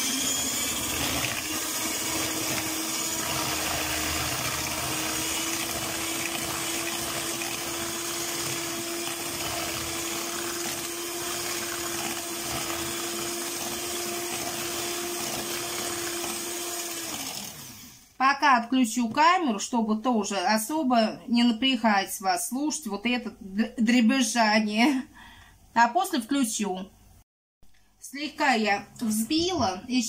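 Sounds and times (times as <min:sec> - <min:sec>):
electric mixer whisking: 0:00.0 - 0:18.1.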